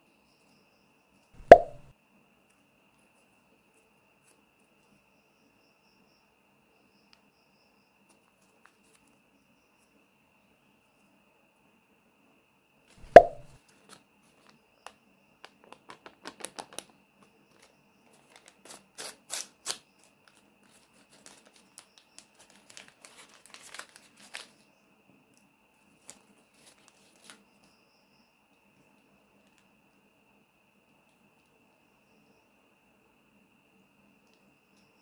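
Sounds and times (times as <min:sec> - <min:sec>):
sharp knock: 0:01.4 - 0:01.9, 0:13.0 - 0:13.6
paper tearing and crinkling: 0:18.3 - 0:19.8, 0:20.7 - 0:24.5.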